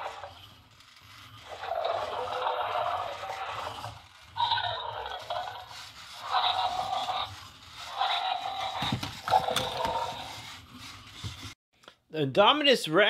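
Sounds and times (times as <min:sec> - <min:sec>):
toy dinosaur roar from small speaker: 0:01.4 - 0:10.4.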